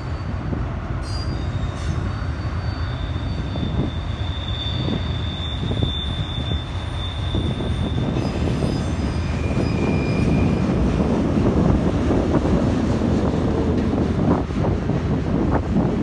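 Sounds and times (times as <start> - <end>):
high-pitched wheel squeals: 0.0 - 10.8
steel wheels rumbling on rails: 0.0 - 16.0.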